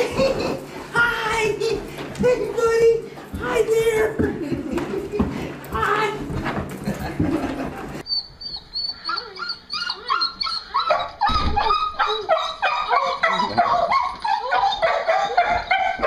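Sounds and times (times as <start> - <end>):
small dog whining and yipping: 8.1 - 16.0
thump: 11.3 - 11.7.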